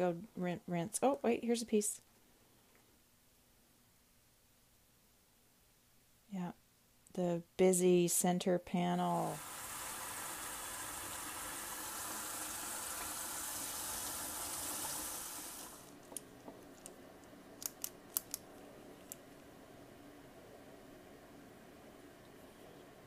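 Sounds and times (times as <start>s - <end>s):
tap water running into sink: 9.4s - 15.9s.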